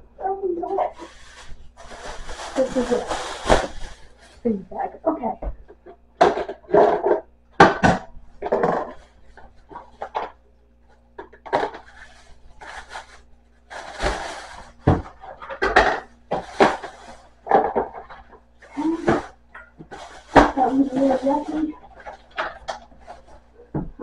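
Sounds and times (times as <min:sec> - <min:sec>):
plastic containers clattering: 0:05.3 - 0:10.4, 0:11.1 - 0:13.1, 0:13.8 - 0:24.0.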